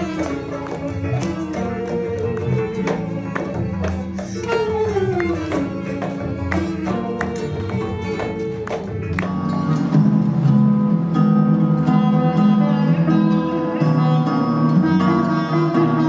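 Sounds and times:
bowed violin: 0:00.0 - 0:16.0
nylon-string guitars strummed: 0:00.0 - 0:16.0
man singing: 0:11.8 - 0:16.0.

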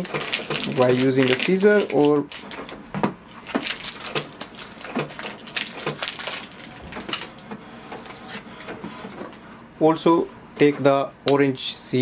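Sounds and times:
packaging crinkling and tearing: 0:00.0 - 0:02.8, 0:03.4 - 0:07.4.

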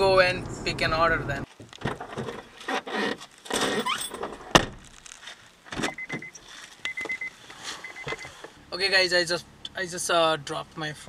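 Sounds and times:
sharp thunk: 0:04.5 - 0:04.8
handling noises at car door: 0:05.7 - 0:08.6
short high beeps: 0:05.9 - 0:08.4.

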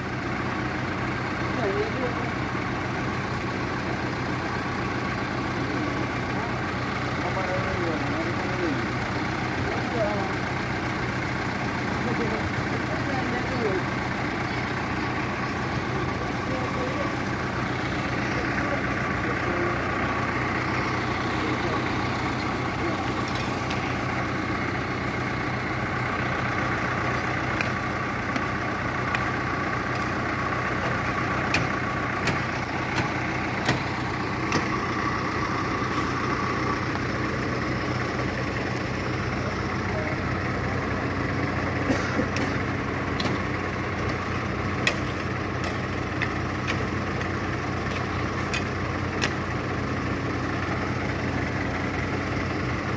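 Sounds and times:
diesel engine idling: 0:00.0 - 0:52.9.

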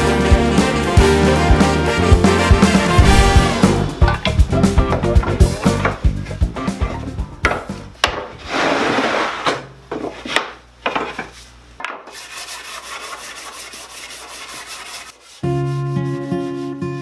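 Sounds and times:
sanding sponge rubbing wood: 0:12.1 - 0:17.0.

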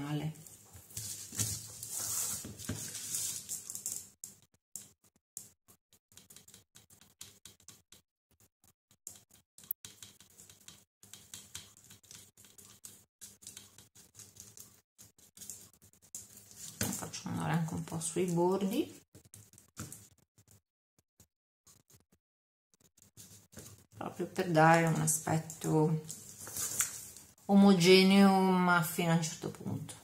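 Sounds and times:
paintbrush brushing and tapping: 0:00.4 - 0:08.0, 0:09.1 - 0:17.2, 0:18.3 - 0:20.6, 0:22.8 - 0:24.0, 0:24.6 - 0:27.3.

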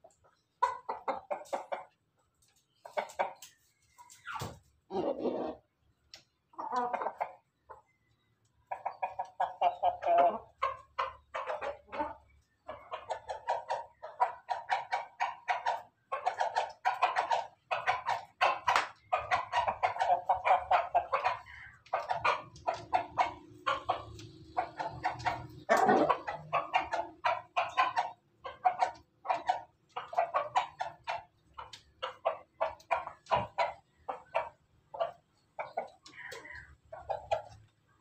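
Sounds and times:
chickens clucking: 0:00.0 - 0:38.0.

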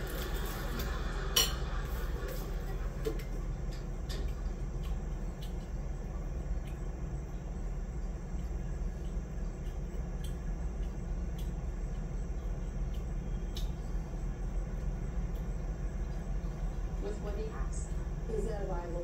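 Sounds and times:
low room hum: 0:00.0 - 0:19.0
cutlery clinking against a dish: 0:01.4 - 0:01.7.

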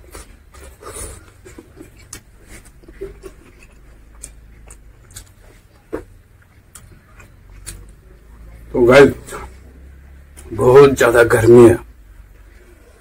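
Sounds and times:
man chewing and lip-smacking: 0:00.0 - 0:08.0.

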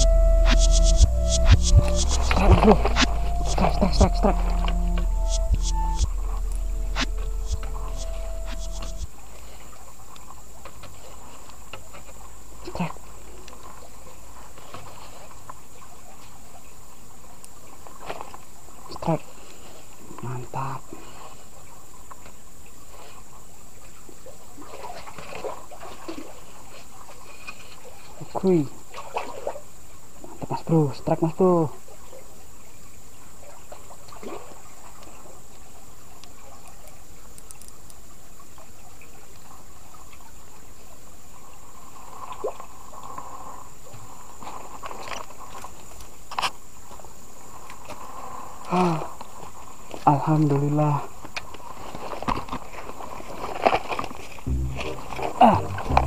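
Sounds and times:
high thin drone: 0:00.0 - 0:09.1, 0:54.5 - 0:56.0
small water splashes: 0:33.2 - 0:41.0.

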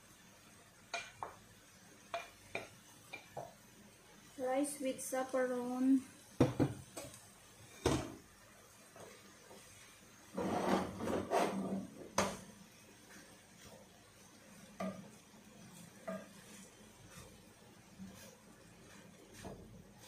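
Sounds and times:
spatula scraping rice in pan: 0:09.6 - 0:12.0, 0:15.7 - 0:20.0.

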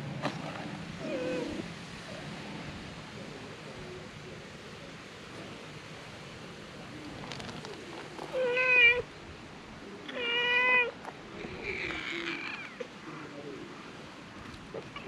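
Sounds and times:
cats meowing: 0:08.3 - 0:09.1, 0:10.0 - 0:11.0.

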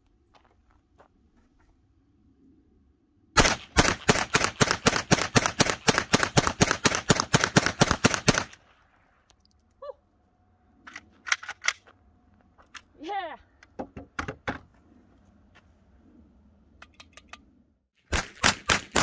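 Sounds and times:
pistol shots: 0:03.4 - 0:08.6.

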